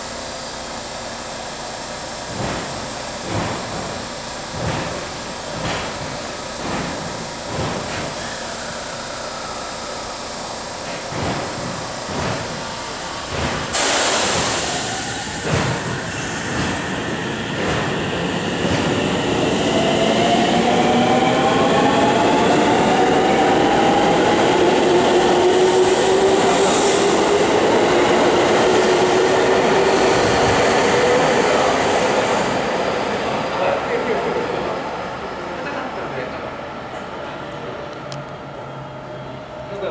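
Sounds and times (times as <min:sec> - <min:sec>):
train wheels clacking on rails: 0:02.2 - 0:08.5, 0:10.8 - 0:34.6
air hiss: 0:02.6 - 0:17.9.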